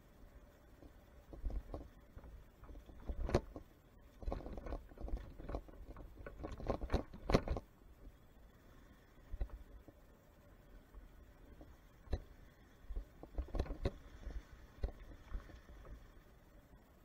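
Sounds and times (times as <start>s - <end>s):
dirt bike knocks and rattles: 1.2s - 7.6s.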